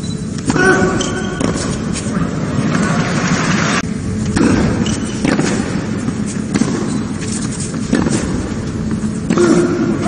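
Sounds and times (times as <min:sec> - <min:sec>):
racquets striking tennis ball: 0:00.4 - 0:02.1, 0:04.2 - 0:10.0.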